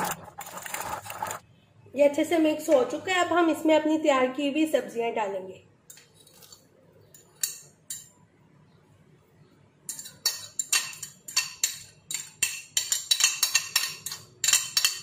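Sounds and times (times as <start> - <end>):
vegetables scraped into bowl: 0.0 - 1.4
metal spoon clinking on glass bowl: 9.9 - 15.0.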